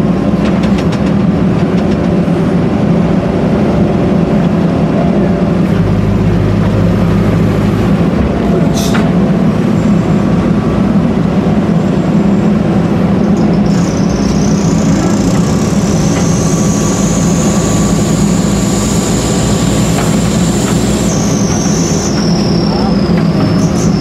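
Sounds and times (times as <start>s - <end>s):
diesel engine running loudly: 0.0s - 24.0s
high thin whine rising in pitch: 13.4s - 24.0s.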